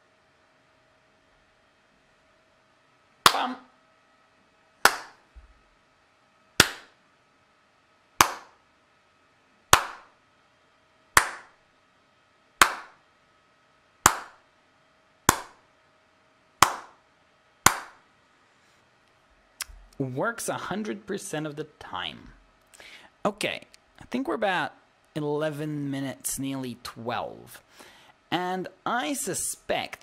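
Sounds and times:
hand claps: 4.8 - 5.2, 6.6 - 7.0, 8.2 - 8.6, 9.7 - 10.1, 11.2 - 11.6, 12.6 - 13.0, 14.0 - 14.4, 15.3 - 15.6, 16.6 - 17.0, 17.7 - 18.0.

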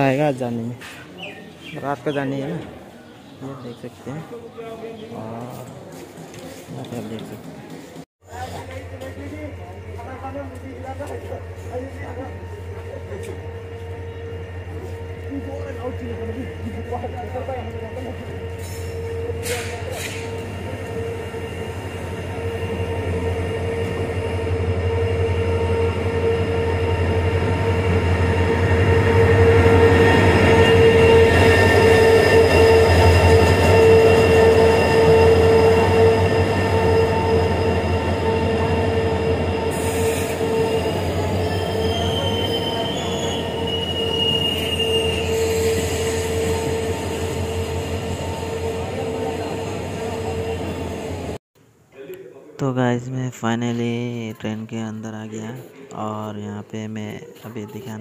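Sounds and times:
train coaches rumbling past: 0.0 - 51.4
train brakes squealing: 11.5 - 51.4.

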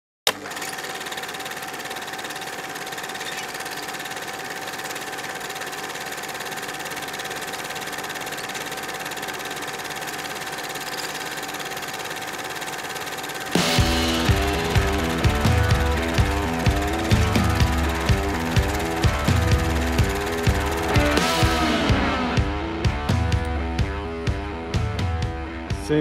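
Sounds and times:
film projector running: 0.3 - 25.2.

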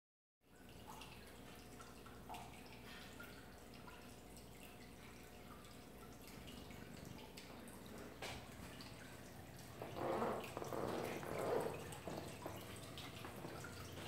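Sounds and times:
water dripping: 0.4 - 14.0
low steady hum: 0.5 - 14.0.

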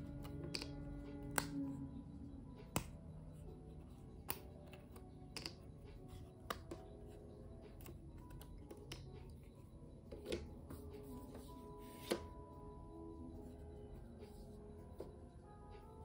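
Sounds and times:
soft background music: 0.0 - 16.0.

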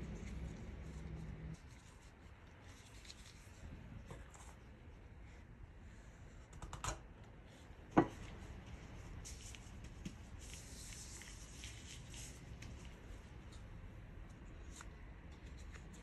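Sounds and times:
plastic gloves rustling: 0.0 - 4.7, 8.1 - 14.0.

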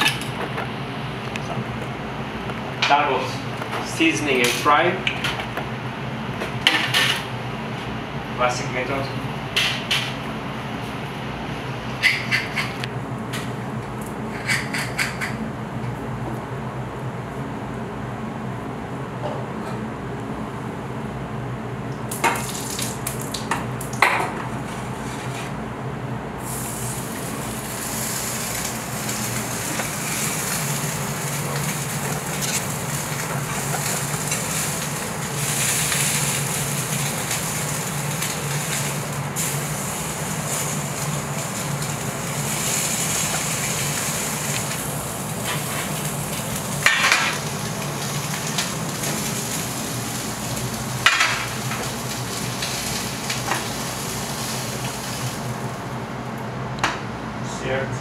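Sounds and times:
fish sizzling in a pan: 26.4 - 55.7.

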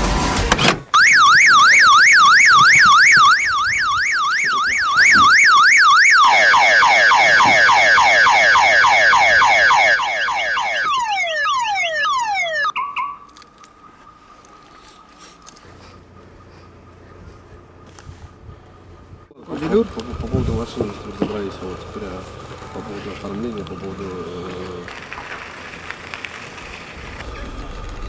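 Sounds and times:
car alarm: 1.0 - 15.2, 20.6 - 24.8.

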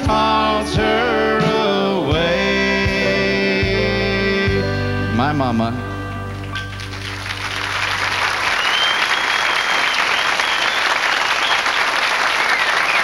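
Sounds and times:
audience applauding: 6.4 - 13.0.

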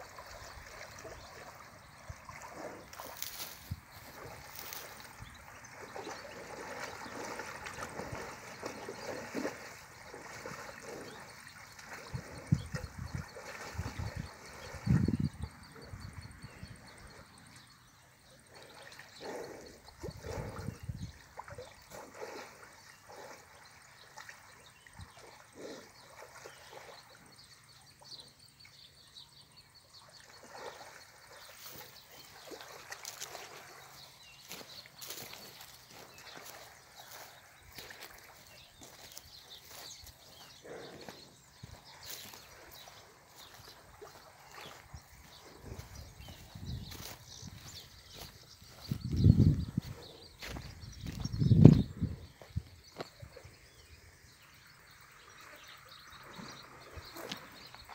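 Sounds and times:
water sloshing and trickling: 0.0 - 16.3, 29.8 - 40.6, 41.4 - 49.0.

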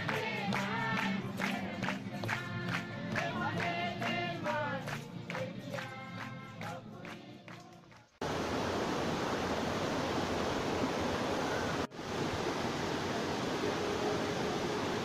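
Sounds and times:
waterfall rushing: 8.2 - 15.0.

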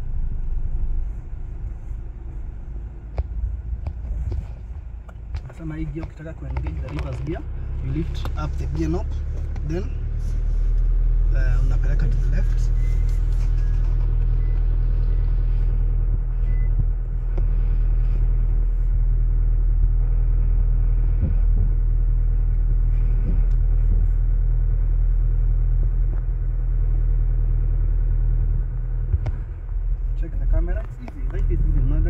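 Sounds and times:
car engine low rumble: 0.0 - 32.0.

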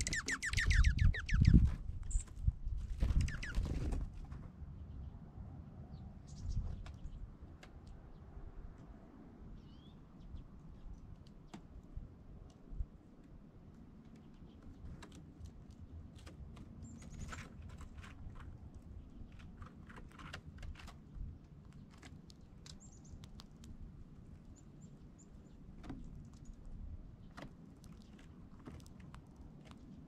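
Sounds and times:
songbird chip notes: 0.0 - 2.3
light clicks and taps: 27.2 - 30.0.

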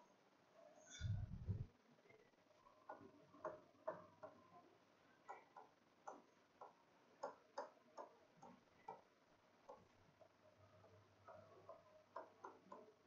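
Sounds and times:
stylus tapping on touchscreen: 5.2 - 9.9, 11.3 - 13.0.

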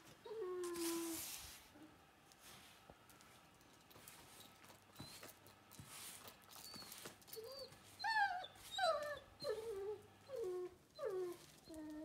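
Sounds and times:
dog whining: 0.2 - 1.2, 6.6 - 12.0.

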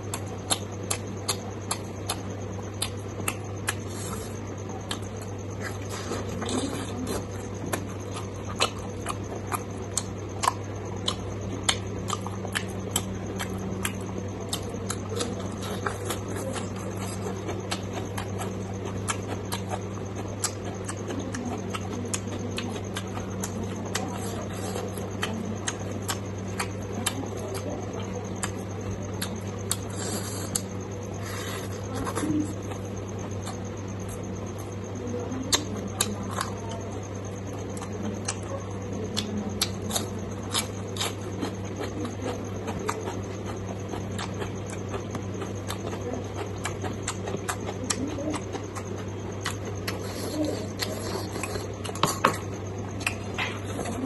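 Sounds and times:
steady low hum: 0.0 - 54.0
wet chewing: 0.0 - 54.0.

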